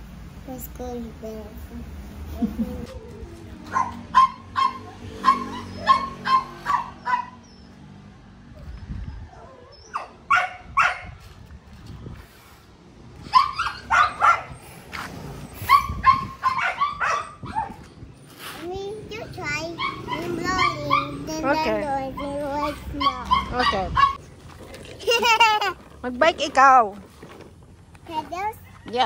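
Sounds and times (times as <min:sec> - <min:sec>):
dog barking: 0:03.7 - 0:07.4, 0:09.9 - 0:11.2, 0:13.3 - 0:14.6, 0:15.7 - 0:17.8, 0:19.8 - 0:21.3, 0:23.0 - 0:24.2.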